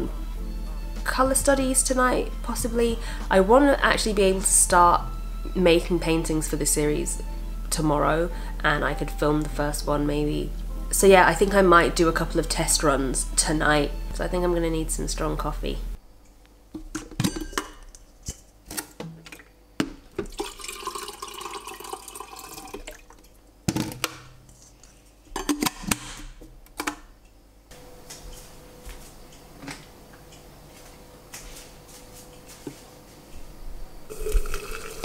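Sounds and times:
glass and crockery clinking: 17.2s - 17.8s
water pouring: 20.2s - 23.4s, 34.1s - 35.0s.

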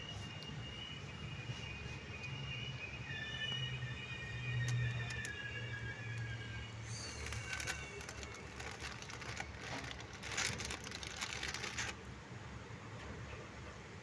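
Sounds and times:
train coaches rattling: 4.6s - 11.9s.

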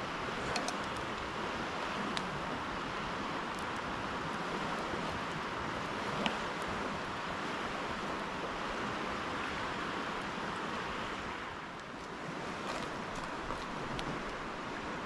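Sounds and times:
river rushing: 0.0s - 15.0s
campfire wood popping: 0.3s - 2.3s, 3.2s - 4.0s.

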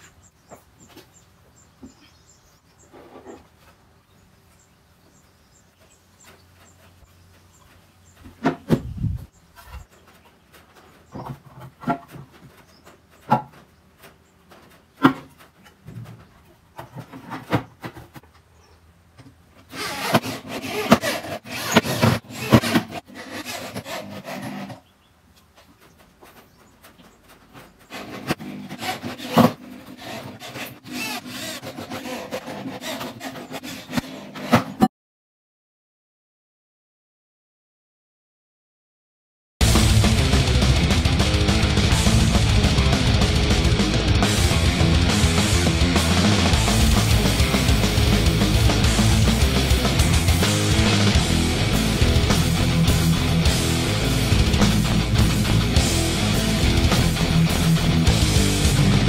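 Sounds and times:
electric drill driving screws: 19.7s - 24.7s, 27.9s - 33.0s.

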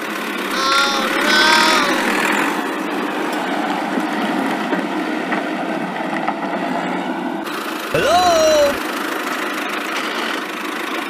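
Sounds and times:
toy tractor drive running: 9.0s - 11.0s.

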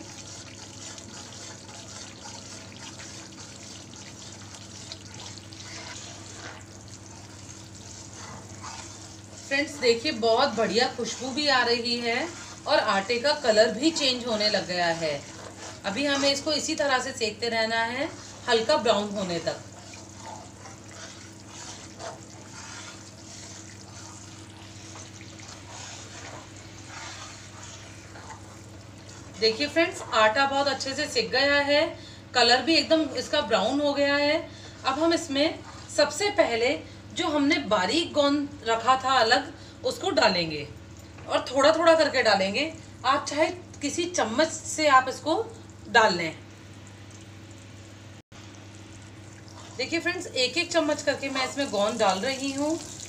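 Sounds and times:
flour sizzling in hot fat: 0.0s - 31.3s, 49.5s - 53.0s
ladle stirring and scraping: 0.0s - 31.4s, 32.7s - 36.7s, 49.3s - 53.0s
low steady hum: 0.0s - 53.0s.

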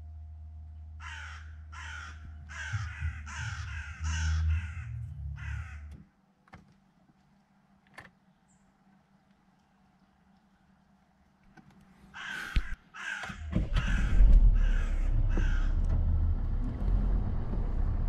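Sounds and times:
steady low hum: 0.0s - 18.0s
crow cawing: 1.0s - 6.0s, 12.1s - 15.8s.

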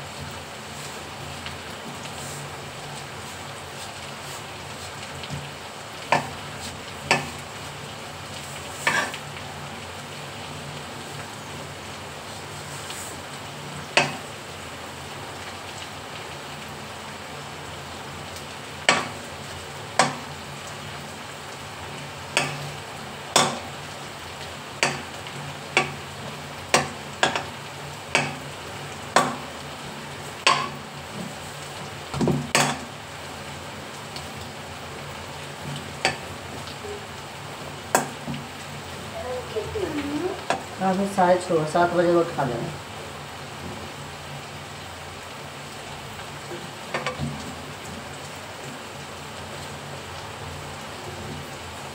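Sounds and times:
food sizzling in a pan: 0.0s - 51.9s
metal utensil clinking on pan: 22.4s - 22.7s, 23.4s - 23.7s, 30.4s - 30.8s.

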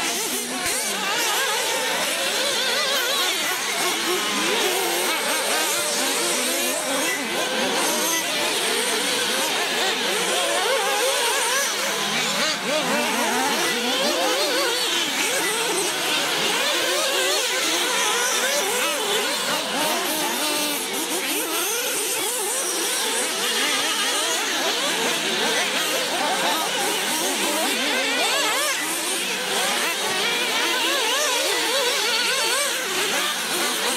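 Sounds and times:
rc car motors whining: 0.0s - 33.9s.

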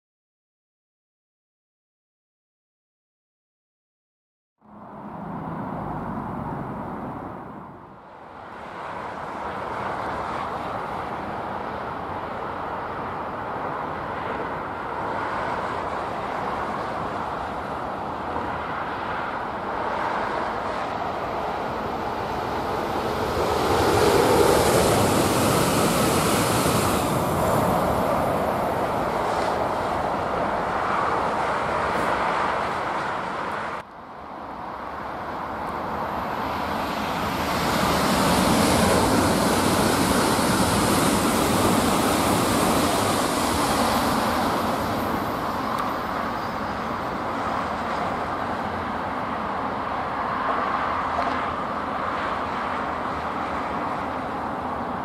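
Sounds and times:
road traffic hum: 4.6s - 55.0s
electric train passing: 4.7s - 55.0s.

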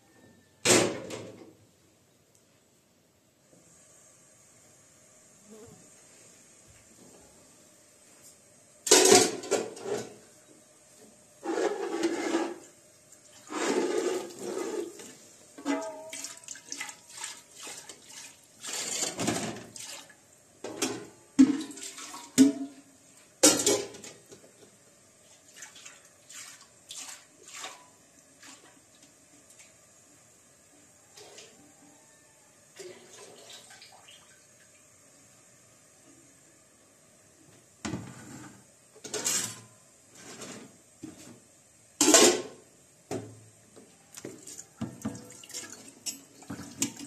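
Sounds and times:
metal pot clanking: 15.6s - 16.4s
water sloshing and pouring: 15.6s - 20.2s, 21.4s - 22.4s, 25.3s - 28.8s, 32.8s - 34.4s, 44.2s - 47.0s.

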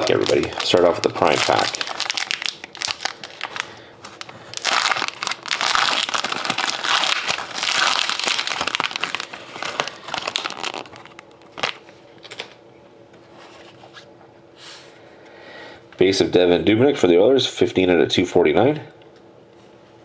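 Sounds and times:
plastic wrapper crinkling and tearing: 0.0s - 12.6s.

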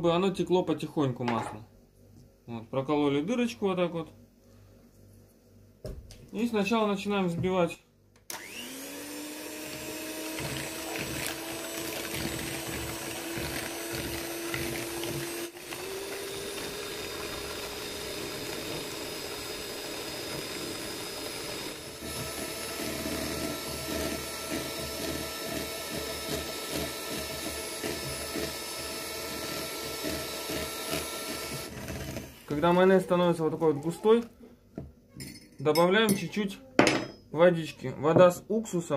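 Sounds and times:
electric hand mixer whisking: 8.3s - 33.2s.

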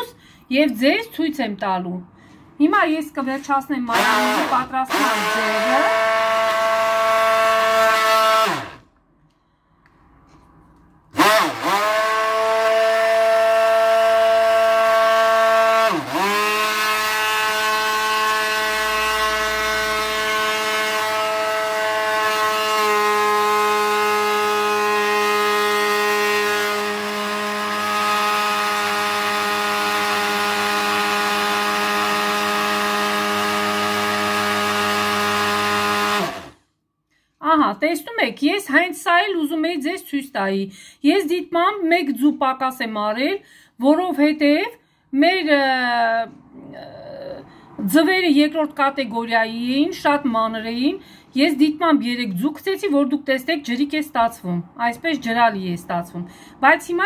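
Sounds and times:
stick blender running: 3.9s - 8.9s, 11.1s - 36.6s.

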